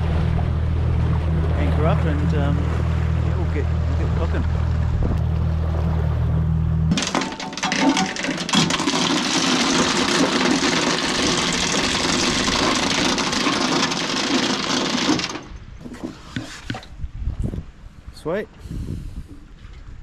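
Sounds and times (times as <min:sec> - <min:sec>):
anchor chain rattling: 0:06.9 - 0:16.0.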